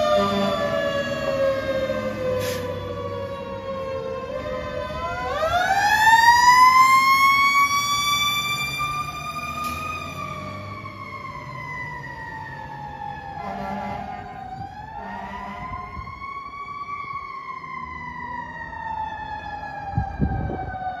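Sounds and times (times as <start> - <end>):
fire truck siren wailing: 0.0 - 21.0
air horn blasts: 13.4 - 14.4, 15.0 - 15.8.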